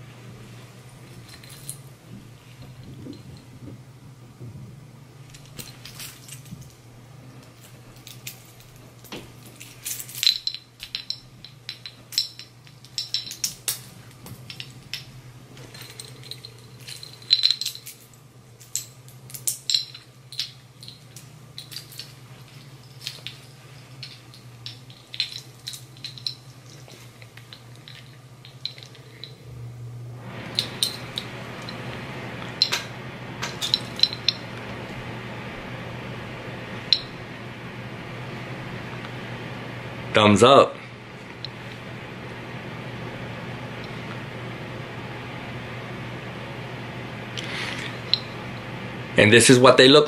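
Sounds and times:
metal watch bracelets clinking: 7.6s - 29.4s, 33.5s - 34.5s.

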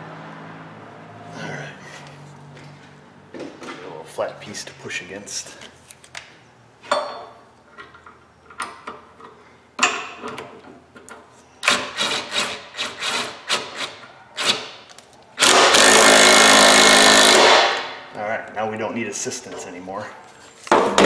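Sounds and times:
cordless impact tool running: 15.4s - 17.9s.

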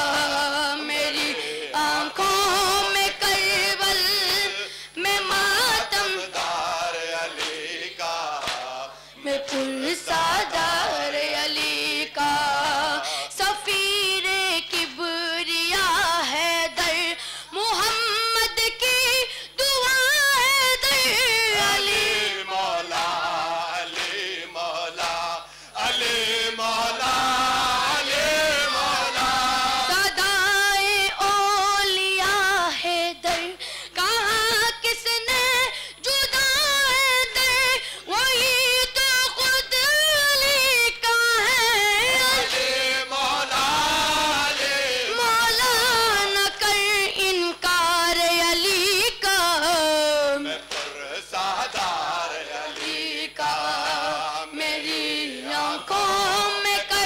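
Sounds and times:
boy chanting a lament: 0.0s - 6.8s, 9.2s - 22.5s, 27.6s - 42.6s, 45.0s - 50.5s, 54.0s - 57.0s.

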